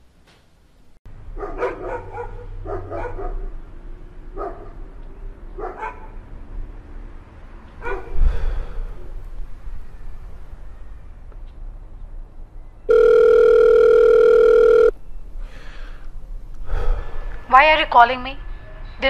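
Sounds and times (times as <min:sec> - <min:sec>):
dog barking: 0:01.4 - 0:03.6, 0:04.3 - 0:04.8, 0:05.6 - 0:06.2, 0:07.8 - 0:08.2.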